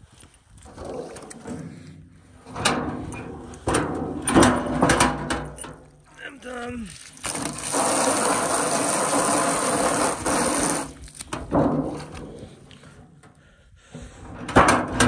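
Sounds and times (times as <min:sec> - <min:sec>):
handling sounds: 0:04.3 - 0:07.8
hose water splashing into tub: 0:06.9 - 0:11.2.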